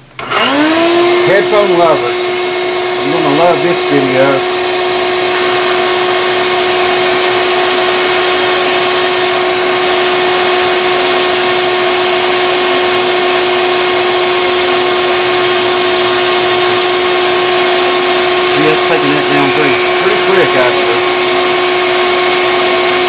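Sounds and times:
rotary tool whining: 0.2s - 23.0s
sanding drum scratching wood: 5.3s - 23.0s.

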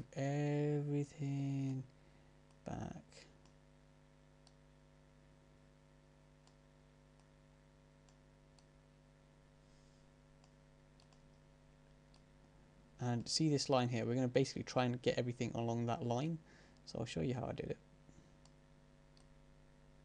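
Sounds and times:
low electrical hum: 0.0s - 20.0s
computer mouse clicks: 8.0s - 8.7s, 10.4s - 11.4s, 18.4s - 19.3s.

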